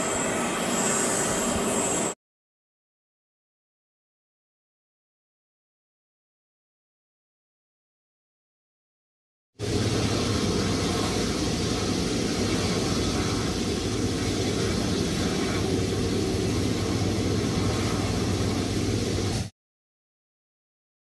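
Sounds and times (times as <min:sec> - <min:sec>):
jet engines running: 0:00.0 - 0:02.2, 0:09.6 - 0:19.5.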